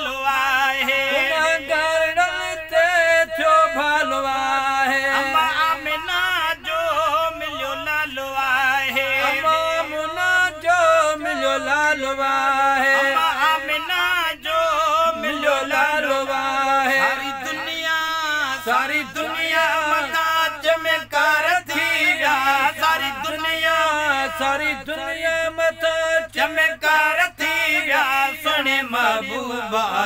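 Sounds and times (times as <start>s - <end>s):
man singing ornamented line: 0.0s - 30.0s.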